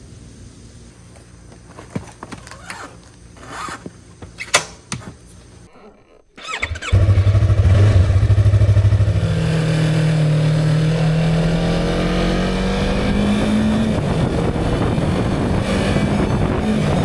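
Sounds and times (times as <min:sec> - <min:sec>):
motorcycle engine running: 0:06.4 - 0:17.0.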